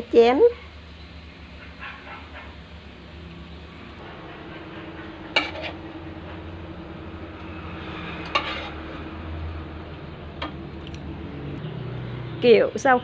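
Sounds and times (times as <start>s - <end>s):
utensils clinking on metal wok: 8.2s - 8.9s.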